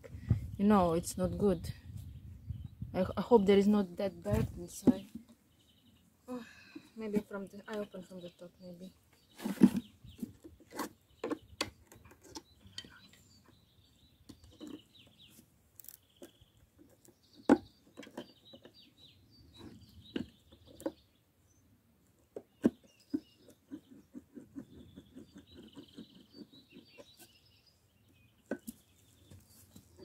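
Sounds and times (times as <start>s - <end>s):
small birds chirping: 0.0s - 30.0s
metal tools knocking and cracking wood: 15.8s - 18.8s.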